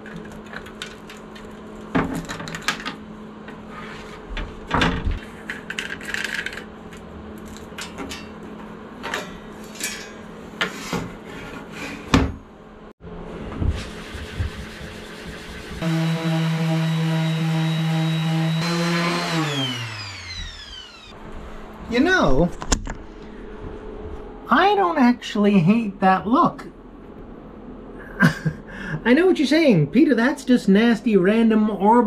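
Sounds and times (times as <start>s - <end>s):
clicks and knocks of handled parts: 0.0s - 3.0s, 5.4s - 10.2s.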